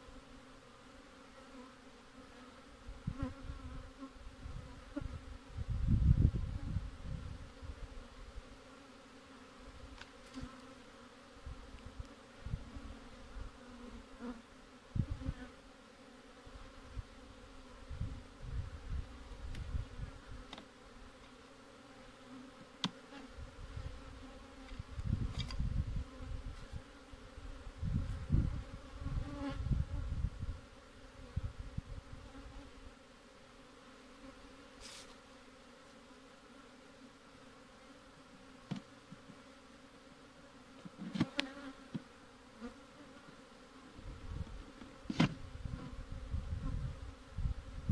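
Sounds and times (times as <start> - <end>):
bees buzzing: 0.0 - 47.9
hive frame clicks: 9.9 - 10.7, 22.7 - 23.0, 24.6 - 25.6, 40.8 - 42.1.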